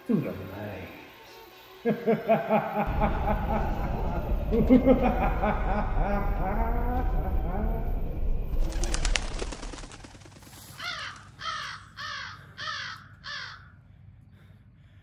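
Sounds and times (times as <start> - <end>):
crow cawing: 10.6 - 13.9.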